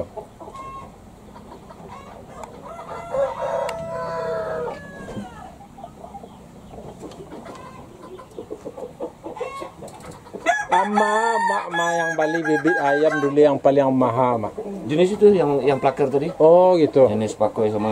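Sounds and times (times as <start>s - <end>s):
chickens clucking: 0.0s - 17.9s
rooster crowing: 2.4s - 5.6s, 10.4s - 13.5s.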